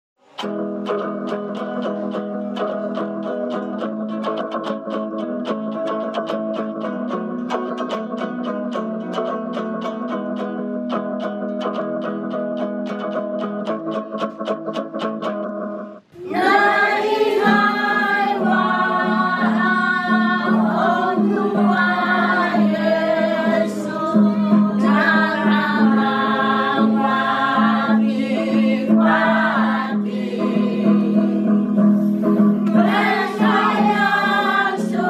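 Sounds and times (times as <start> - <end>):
choir singing a hymn: 16.2 - 35.0.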